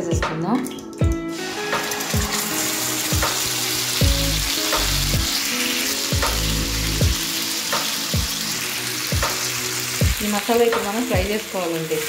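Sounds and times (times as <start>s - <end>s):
paste sizzling in hot oil: 1.3s - 12.0s.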